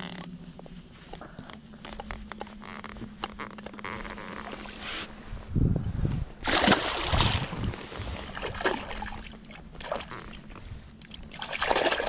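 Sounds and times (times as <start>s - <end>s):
faint low hum: 0.0s - 12.0s
water splashing and trickling: 6.4s - 12.0s.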